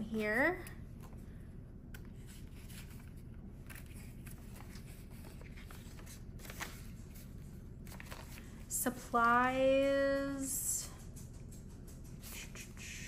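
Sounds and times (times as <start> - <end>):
plastic pages turning: 1.9 - 9.2
banknotes rustling: 2.0 - 9.2.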